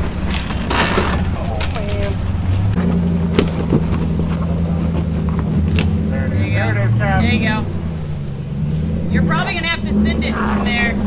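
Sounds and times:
faint voices: 0:00.0 - 0:07.9, 0:08.9 - 0:11.0
engine running at low revs: 0:00.0 - 0:11.0.

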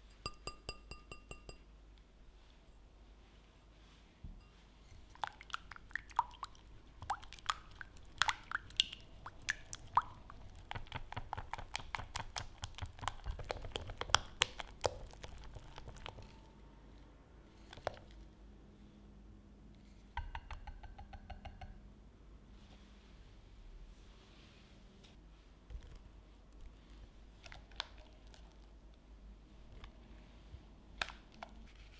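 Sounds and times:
hand whisk beating cream in bowl: 0:10.2 - 0:16.4.

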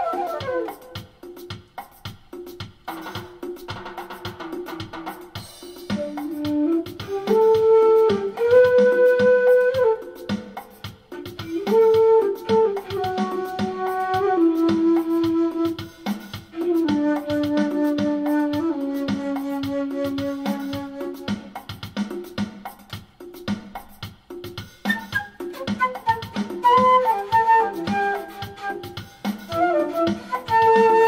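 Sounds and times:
flute with effects long notes: 0:00.0 - 0:01.1, 0:06.0 - 0:21.6, 0:24.9 - 0:31.0
backing drum beat: 0:00.0 - 0:31.0.

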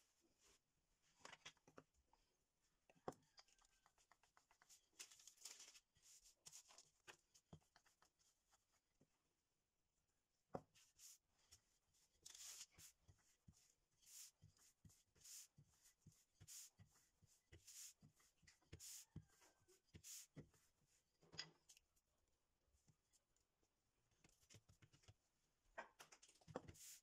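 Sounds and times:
hand swishing on dough: 0:12.3 - 0:19.4.

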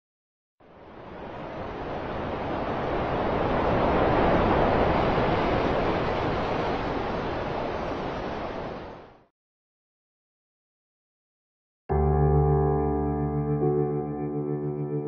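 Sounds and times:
sea surf rushing: 0:00.6 - 0:09.3.

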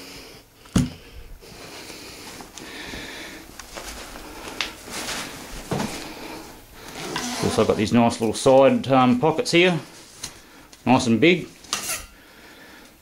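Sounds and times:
backpack rustling: 0:03.3 - 0:07.9.

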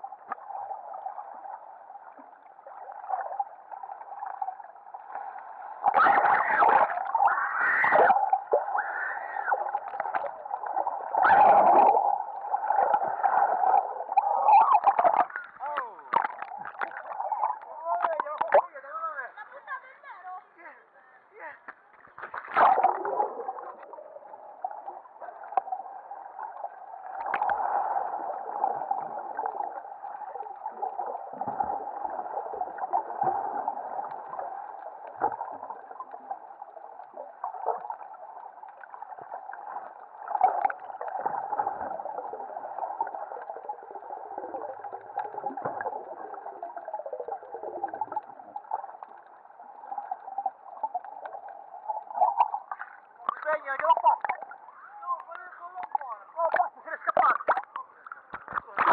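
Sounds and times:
underwater water rush: 0:00.0 - 0:18.9, 0:21.9 - 0:58.9
splash: 0:22.1 - 0:23.7, 0:58.5 - 0:58.9.

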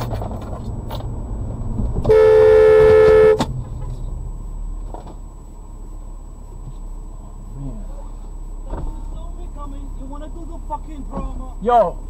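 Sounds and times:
car driving rumble: 0:00.0 - 0:12.0
car horn blast: 0:02.0 - 0:03.5.

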